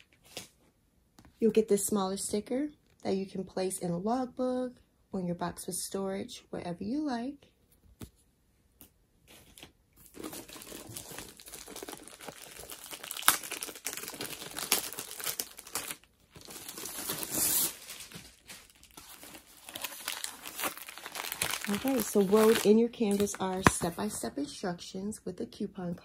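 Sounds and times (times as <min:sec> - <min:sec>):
plastic wrapping crinkling: 0:09.4 - 0:24.2.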